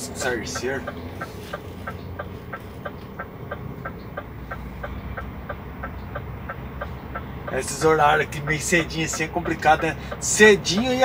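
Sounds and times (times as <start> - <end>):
diesel engine idling: 0.0 - 11.0
steady ticking: 0.0 - 11.0.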